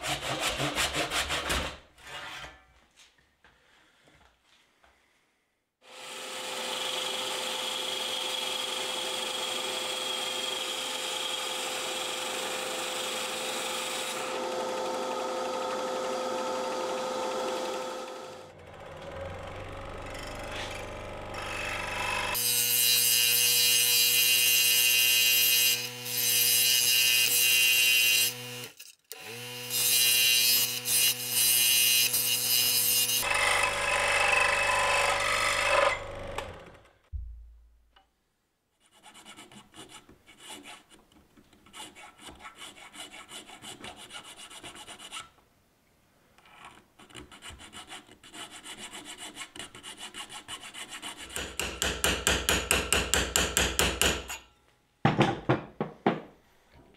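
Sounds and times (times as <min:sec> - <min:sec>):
saw motor winding down: 0:11.8 - 0:22.4, 0:33.2 - 0:36.8
scroll saw cutting antler: 0:18.8 - 0:34.3
needle file rasping: 0:41.6 - 0:45.3, 0:46.5 - 0:51.5.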